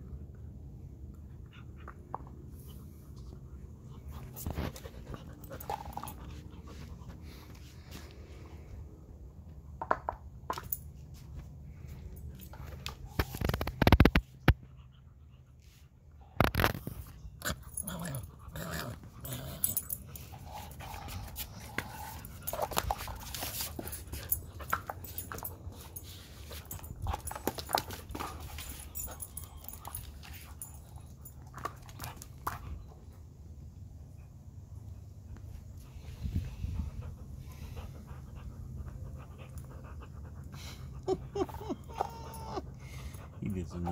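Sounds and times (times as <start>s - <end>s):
dog claws and ball clicking on stone: 26.6s - 30.7s
dog snuffling and grunting: 40.6s - 43.9s.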